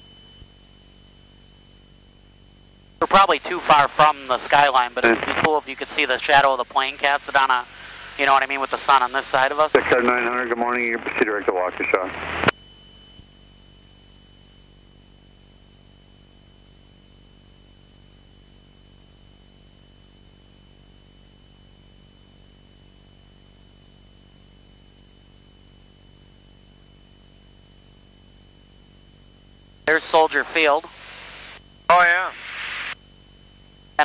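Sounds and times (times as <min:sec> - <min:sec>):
high-pitched whine: 0:00.0 - 0:22.8, 0:29.8 - 0:34.0
intercom hiss and hum: 0:03.0 - 0:12.6, 0:29.9 - 0:33.0.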